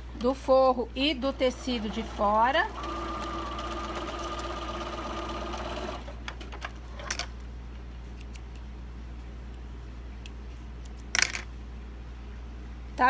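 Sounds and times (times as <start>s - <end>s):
sewing machine humming: 1.3s - 6.2s.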